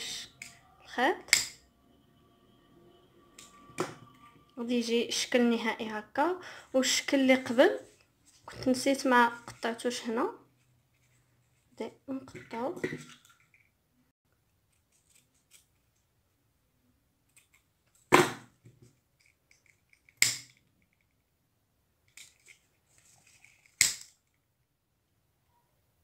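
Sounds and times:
ribbon rustling: 14.6 - 16.0.

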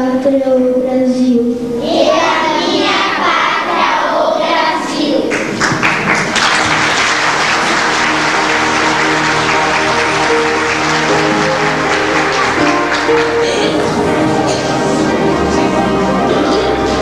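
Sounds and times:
faint music: 0.0 - 17.0
audience applause: 5.3 - 15.2.

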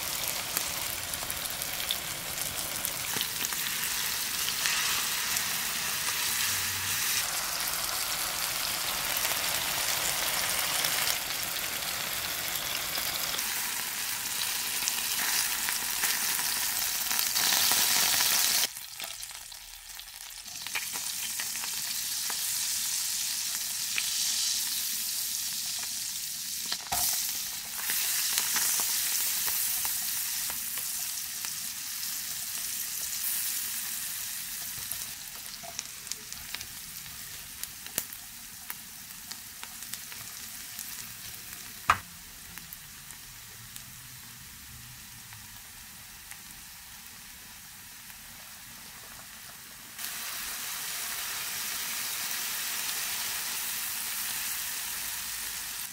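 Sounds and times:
meat sizzling in oil: 0.0 - 55.9
onion sizzling in fat: 0.0 - 55.9.

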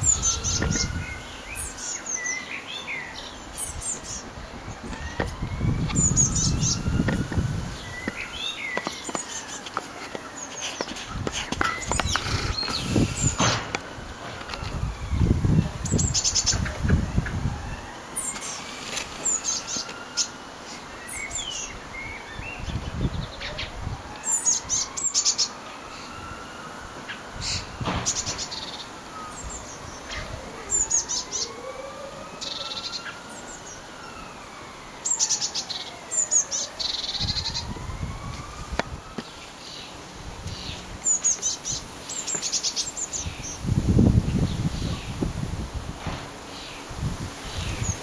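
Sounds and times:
wind rumbling on microphone: 0.0 - 2.0, 3.4 - 19.5, 21.3 - 24.7, 26.8 - 28.5, 37.1 - 39.3, 43.1 - 48.0
blue tits chirping: 0.0 - 17.2, 18.1 - 26.3, 27.1 - 31.6, 32.3 - 34.3, 35.0 - 37.8, 39.1 - 45.2.

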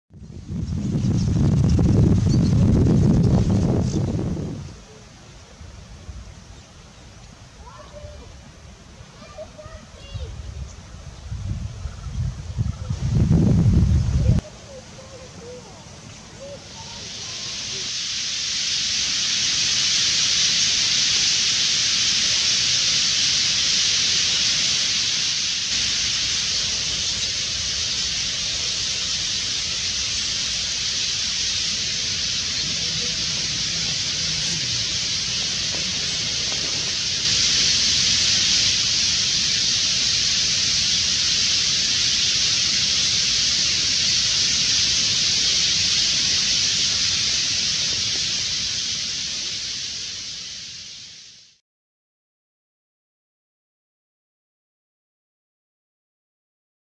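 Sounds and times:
flock of birds calling: 0.8 - 13.1, 14.2 - 50.9.

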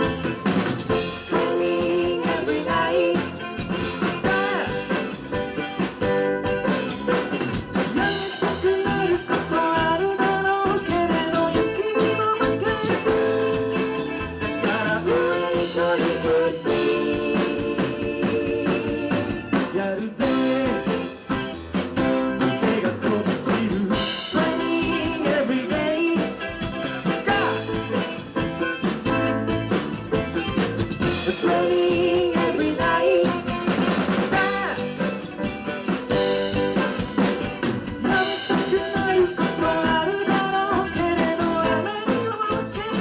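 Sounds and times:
live band playing: 0.0 - 43.0
lead singer singing: 1.2 - 5.2, 7.9 - 13.7, 14.5 - 21.2, 22.4 - 28.1, 31.0 - 35.1, 38.0 - 43.0.

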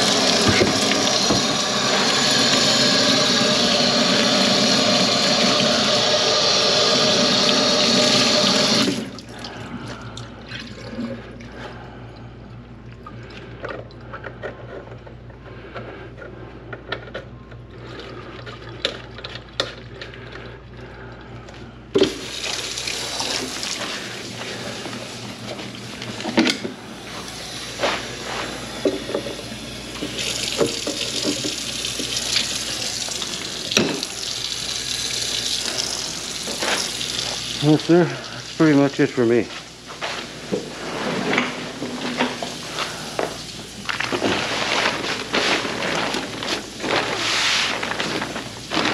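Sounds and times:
faucet running into steel sink: 0.0 - 9.3, 22.0 - 25.2, 27.2 - 39.2
water splashing in sink: 0.0 - 11.6, 22.0 - 26.5, 27.1 - 39.1, 40.9 - 48.9.

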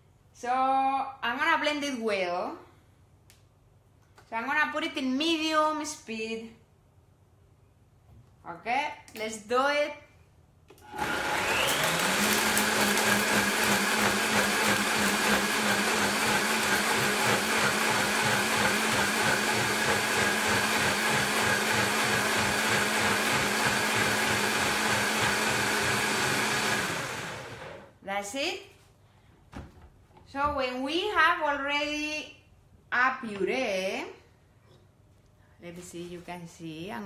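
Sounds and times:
blender running: 10.8 - 27.9.

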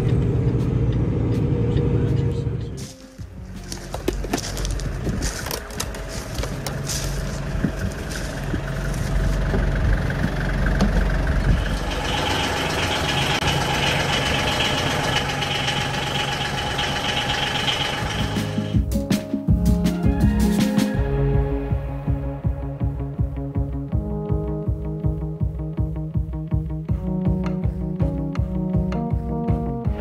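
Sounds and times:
vehicle engine running: 0.0 - 18.9.

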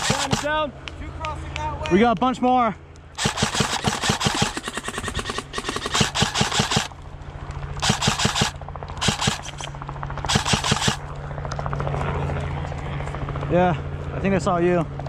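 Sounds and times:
airsoft rifle bursts: 0.0 - 0.5, 3.2 - 6.9, 7.8 - 9.7, 10.3 - 11.0.

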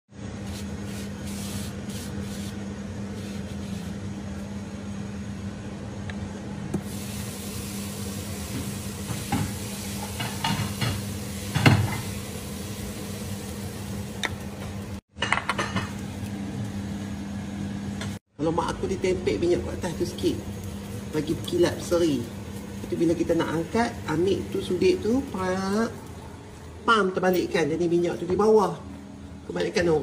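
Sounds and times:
batter sizzling on hot pan: 6.8 - 15.0, 19.8 - 26.2.

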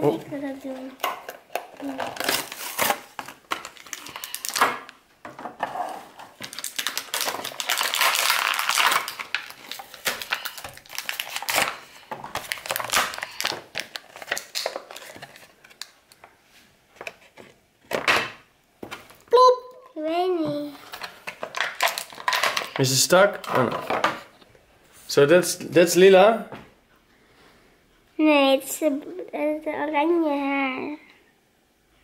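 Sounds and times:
plastic packaging crinkling: 1.0 - 5.0, 5.8 - 16.2, 20.8 - 23.9.

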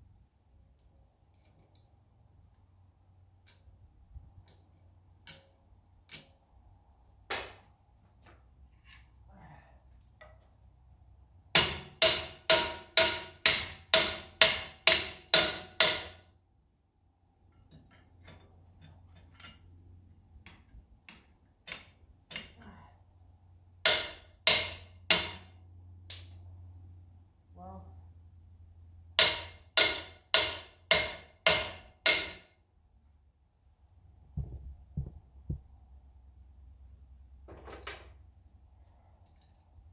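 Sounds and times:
hammer striking steel bar: 11.6 - 16.3, 20.5 - 22.5, 23.8 - 26.4, 29.2 - 32.6.

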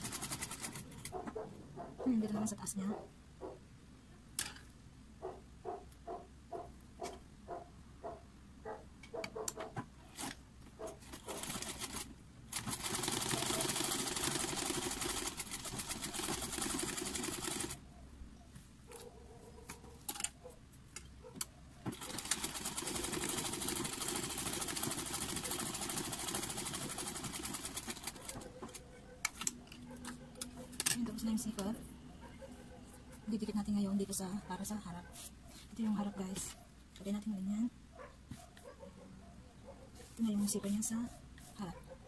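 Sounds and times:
sewing machine clattering: 0.0 - 1.3, 11.0 - 17.8, 21.9 - 28.8.

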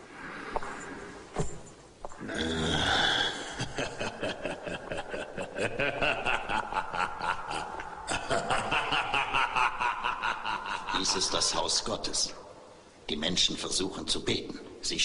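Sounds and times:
man laughing: 3.4 - 11.6.

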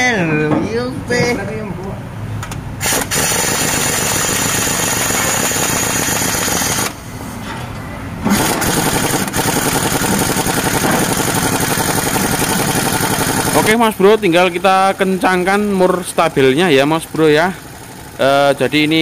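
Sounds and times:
impact wrench hammering: 2.8 - 7.0, 8.2 - 14.0.

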